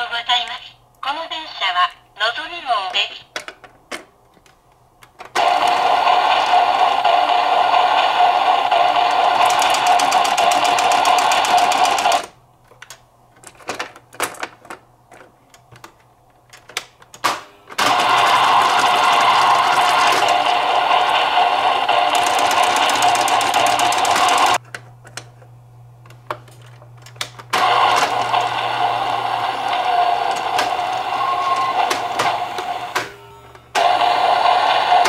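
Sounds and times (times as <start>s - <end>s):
toy train sound effect: 5.4s - 12.3s, 17.8s - 24.6s, 27.6s - 35.0s.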